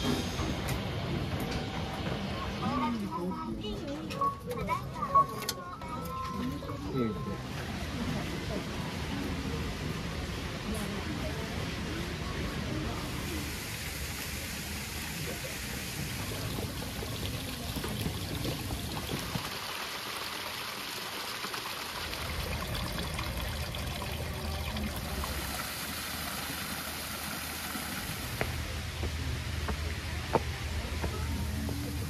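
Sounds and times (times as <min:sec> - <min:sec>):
running water rushing: 0:07.2 - 0:32.0.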